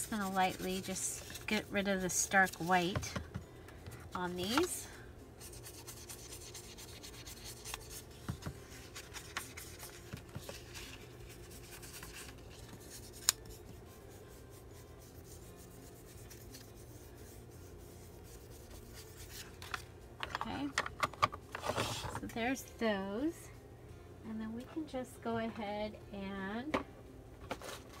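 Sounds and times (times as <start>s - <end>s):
foam tool rubbing paper: 0.0s - 2.8s, 5.4s - 19.6s.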